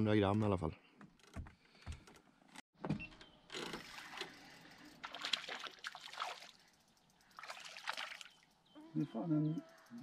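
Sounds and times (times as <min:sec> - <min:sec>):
water splashing and sloshing: 0:03.6 - 0:06.7, 0:07.3 - 0:08.5.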